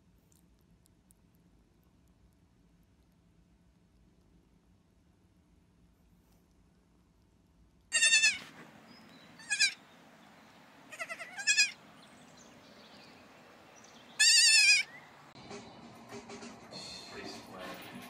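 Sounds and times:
goat kids bleating: 0:07.9 - 0:08.5, 0:09.4 - 0:09.8, 0:10.9 - 0:11.8, 0:14.2 - 0:15.0.

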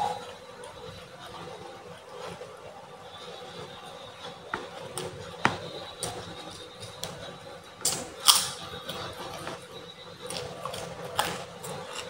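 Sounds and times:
person eating: 0:10.2 - 0:12.0.

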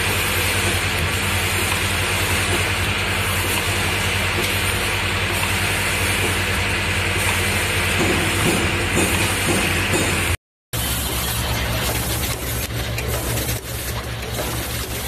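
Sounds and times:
machine running with low hum: 0:00.0 - 0:15.0.

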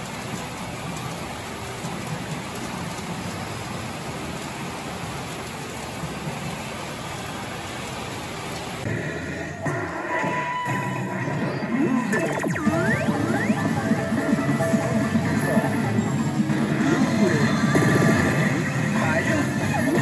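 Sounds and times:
electronic game machine sounds: 0:09.0 - 0:20.0.

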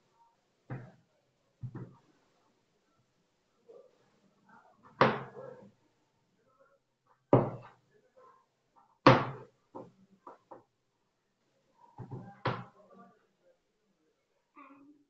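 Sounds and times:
knife chopping on cutting board: 0:07.3 - 0:07.7.

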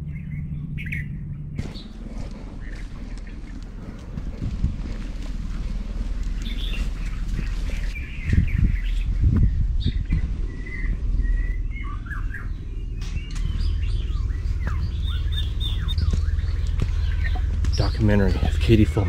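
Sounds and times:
birds chirping: 0:00.0 - 0:19.0
steady low rumble: 0:00.0 - 0:19.0
footsteps on dirt trail: 0:01.6 - 0:11.2, 0:13.2 - 0:19.0.

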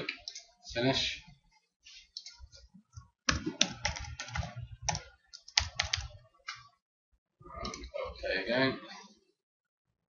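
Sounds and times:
computer keyboard typing: 0:03.3 - 0:06.6.

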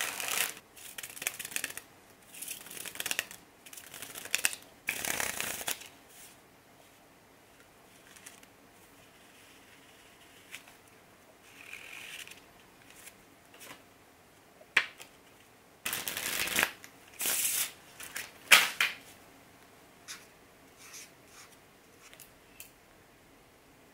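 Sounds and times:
playing cards clicking and snapping: 0:00.0 - 0:01.8, 0:02.5 - 0:05.9, 0:15.9 - 0:16.8
cards riffle-shuffled: 0:00.0 - 0:05.9, 0:15.9 - 0:19.0.

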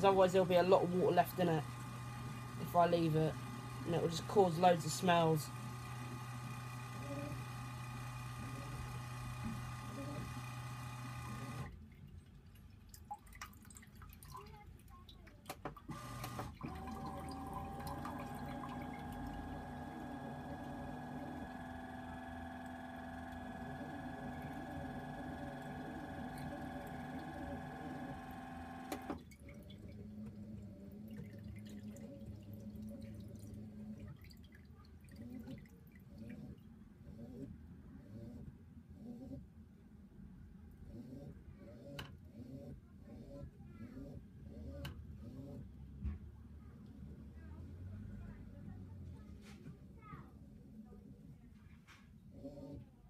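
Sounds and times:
small motor humming: 0:00.0 - 0:11.7, 0:15.9 - 0:29.2
water draining and dripping: 0:11.7 - 0:15.9, 0:16.5 - 0:20.0.

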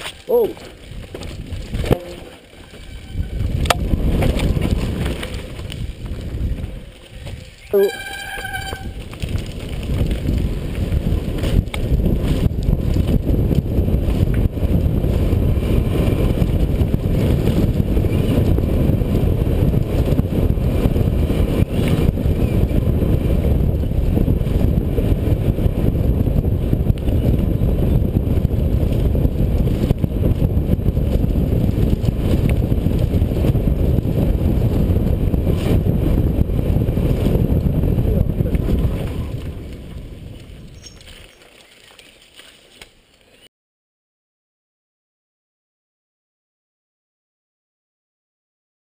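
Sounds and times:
bike knocks and rattles: 0:00.0 - 0:22.4
wind buffeting microphone: 0:00.0 - 0:42.2.

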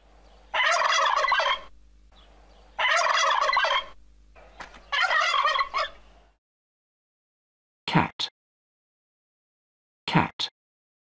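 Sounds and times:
turkey gobbling: 0:00.5 - 0:01.8, 0:02.7 - 0:06.1.

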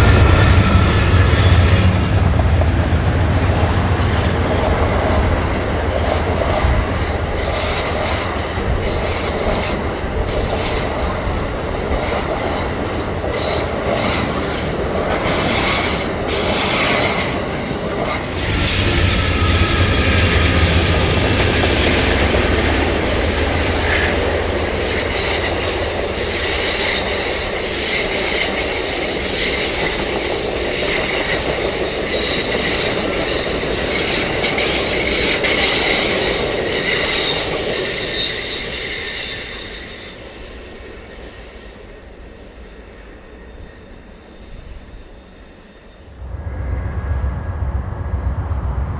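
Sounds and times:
diesel locomotive rumble: 0:00.0 - 0:28.0, 0:46.2 - 0:48.9
train wheels clicking over rails: 0:00.0 - 0:41.9.

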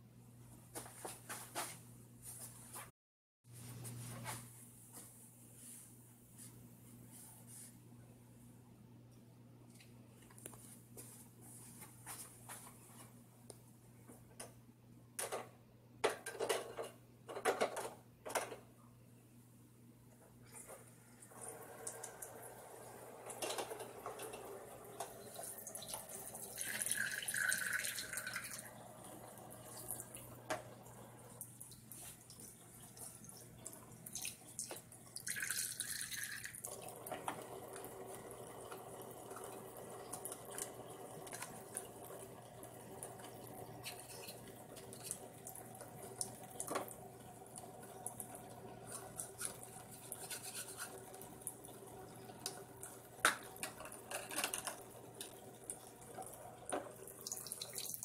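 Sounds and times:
water running and splashing in sink: 0:21.2 - 0:58.0.

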